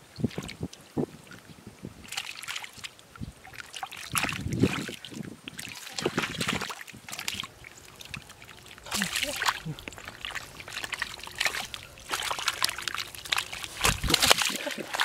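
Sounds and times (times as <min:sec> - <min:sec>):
hands sloshing in muddy water: 0:02.0 - 0:15.0.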